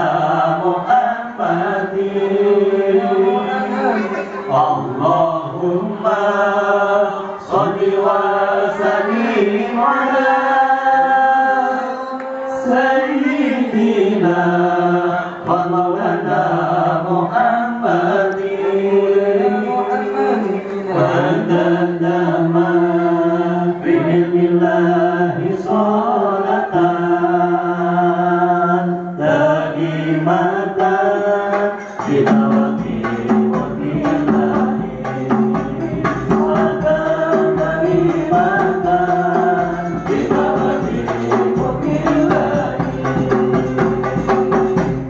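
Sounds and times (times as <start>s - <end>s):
men chanting in unison over pa: 0.0s - 45.0s.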